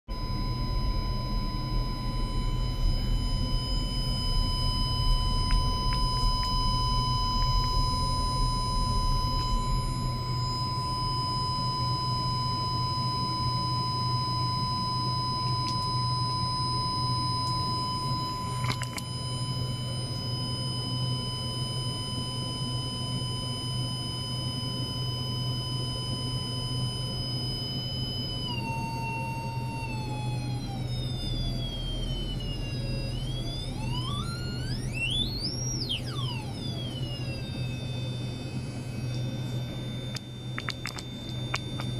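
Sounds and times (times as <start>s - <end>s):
high electronic tones: 0.1s - 41.9s
low electrical hum: 0.1s - 41.9s
brief click: 18.6s - 19.1s.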